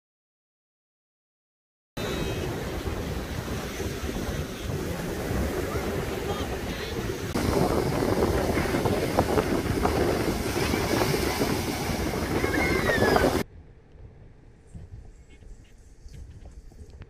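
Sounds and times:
waves rushing: 2.0 - 13.4
wind buffeting microphone: 2.0 - 17.0.

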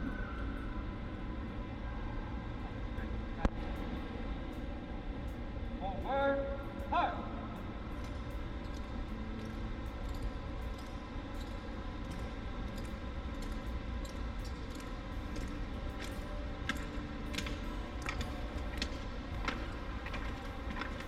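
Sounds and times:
low hum: 0.0 - 21.0
shoes clicking on concrete: 14.5 - 21.0.

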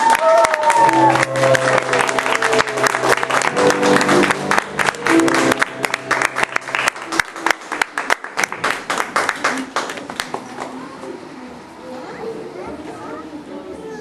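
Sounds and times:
audience applauding: 0.0 - 10.8
music: 0.2 - 7.8.

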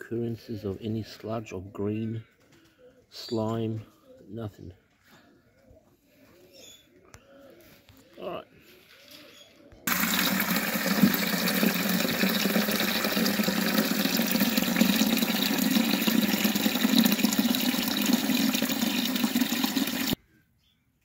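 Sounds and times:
water running from a tap: 9.9 - 20.2
water splashing into a drinker: 9.9 - 20.2.

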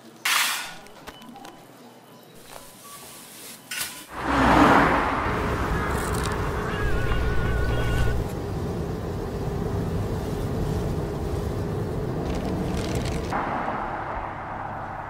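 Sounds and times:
car driving rumble inside cabin: 4.2 - 13.4.

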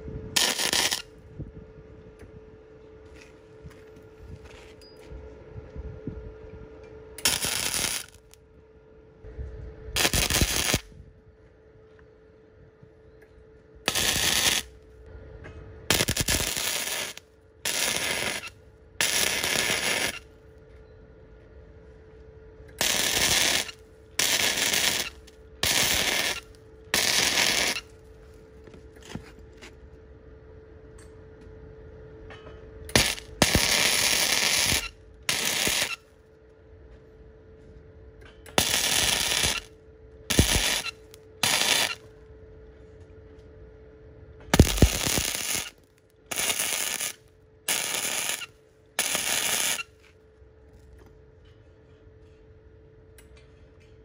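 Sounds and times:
faint steady hum: 0.0 - 54.0
loud hissing bursts: 40.3 - 42.0.

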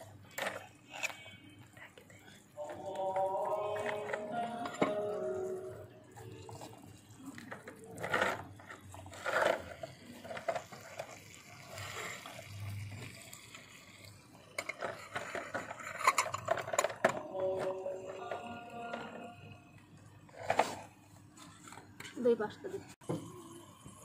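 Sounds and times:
metal utensils scraping in pot: 2.6 - 19.5.

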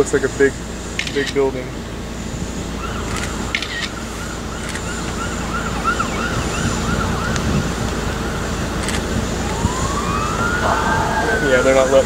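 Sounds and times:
siren yelping: 2.8 - 8.4, 9.3 - 12.0.

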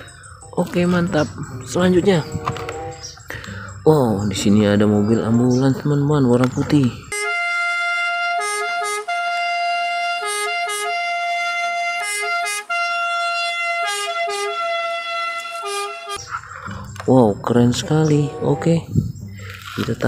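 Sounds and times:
ambulance two-tone siren: 0.0 - 4.4, 7.1 - 17.0, 17.7 - 18.9.

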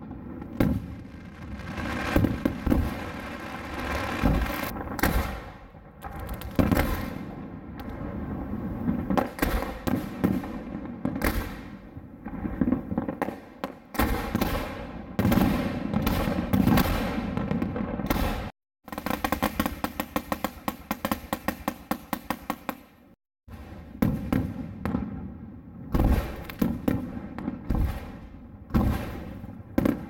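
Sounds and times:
firework shells bursting: 0.6 - 5.4.

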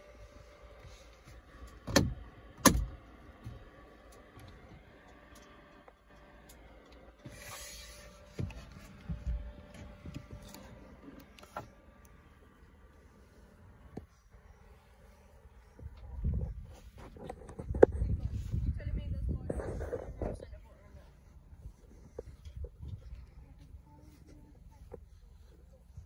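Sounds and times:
knocks and bumps inside van: 1.3 - 3.8, 8.2 - 10.6.

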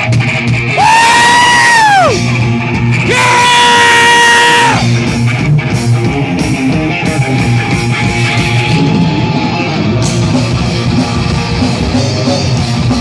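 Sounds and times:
live rock band playing: 0.0 - 13.0
held high guitar notes: 3.0 - 13.0.

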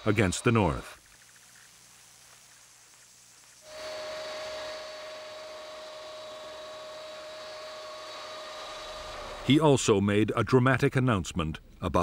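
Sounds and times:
faint hiss: 0.0 - 12.0
jet engine whine: 3.6 - 9.5.

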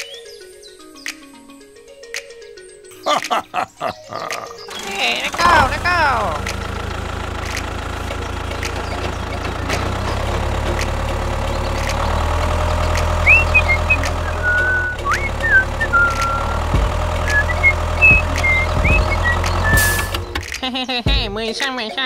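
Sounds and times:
diesel tractor engine rumbling: 4.6 - 21.3
high chirping whistles: 13.0 - 20.3.

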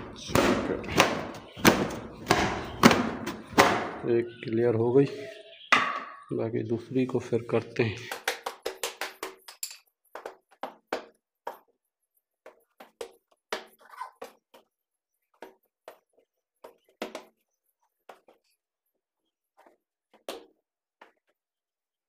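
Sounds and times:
rugs knocking and thumping: 0.0 - 4.1.

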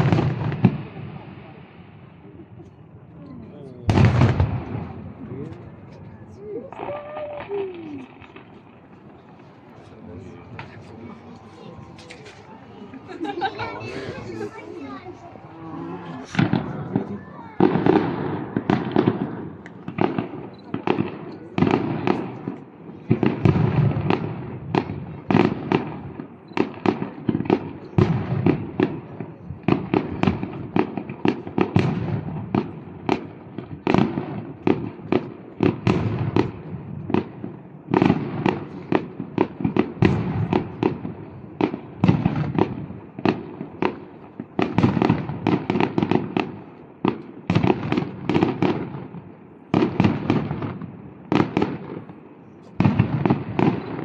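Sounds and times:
fireworks bangs: 0.0 - 3.0, 3.6 - 54.0.

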